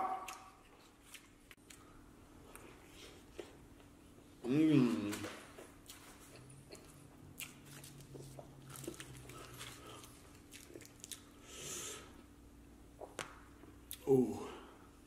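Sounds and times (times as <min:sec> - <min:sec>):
wet chewing: 0:00.2 - 0:03.6, 0:05.1 - 0:11.5.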